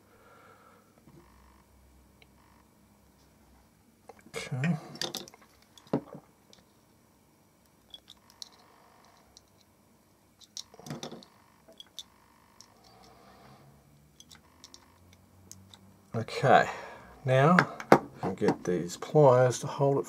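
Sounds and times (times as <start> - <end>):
small metal clicks: 5.0 - 6.7, 7.6 - 9.8, 10.4 - 13.2, 14.2 - 15.8.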